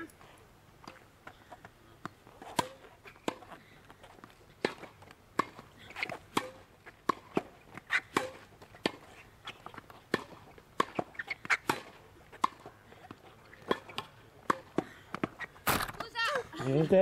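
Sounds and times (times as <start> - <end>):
tennis ball popping off rackets: 0.8 - 16.2
tennis ball bouncing on court: 2.0 - 3.5, 4.6 - 16.2.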